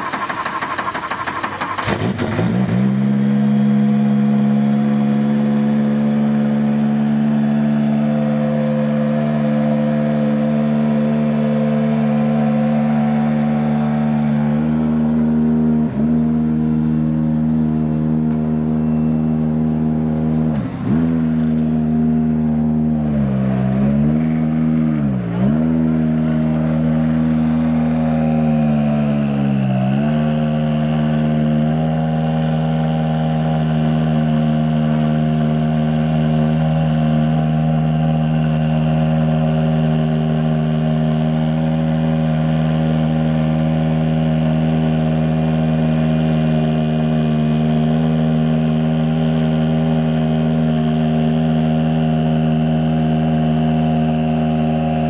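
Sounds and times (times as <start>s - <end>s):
car engine idling: 0.0s - 2.3s, 3.4s - 23.7s, 24.3s - 29.7s.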